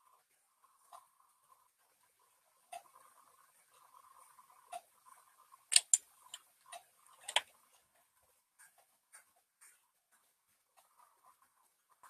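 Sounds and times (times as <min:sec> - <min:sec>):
computer clicks and taps: 0:05.7 - 0:06.5, 0:07.2 - 0:07.5.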